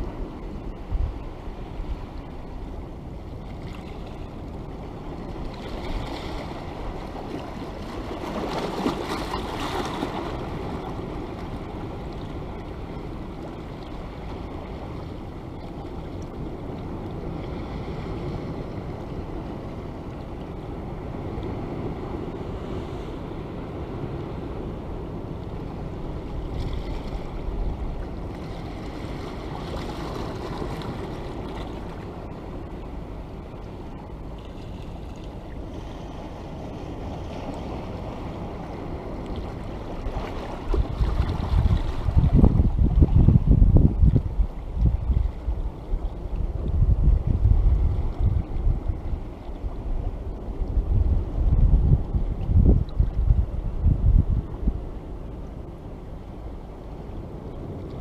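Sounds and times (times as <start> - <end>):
sea waves washing on rocky shore: 1.4 - 25.0, 25.6 - 34.3, 34.9 - 44.8.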